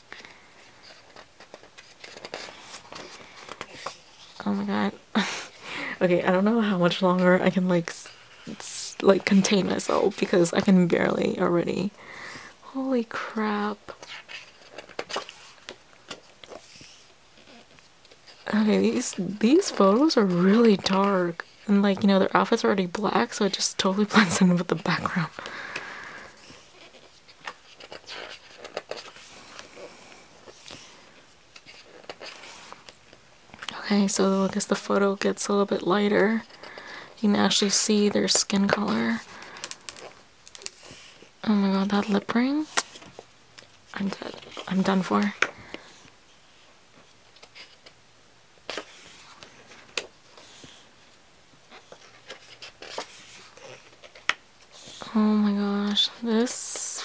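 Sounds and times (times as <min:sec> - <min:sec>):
book pages turning: 0:00.1 - 0:04.6, 0:13.8 - 0:21.7, 0:22.5 - 0:36.9, 0:37.5 - 0:48.0, 0:48.6 - 0:56.5.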